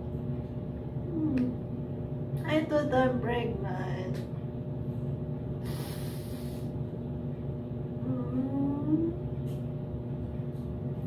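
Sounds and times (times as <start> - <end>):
steady low hum: 0.0 - 11.0
woman sniffing: 5.6 - 6.7.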